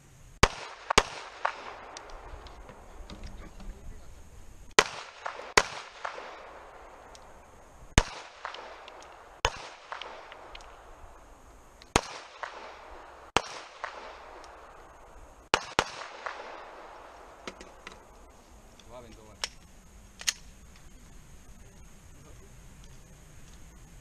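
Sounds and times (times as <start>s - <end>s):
handgun shots with echo: 4.8s - 6.6s.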